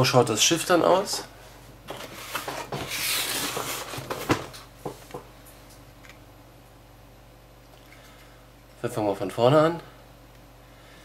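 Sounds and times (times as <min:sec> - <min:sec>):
cardboard packaging rustling: 0:01.9 - 0:04.6.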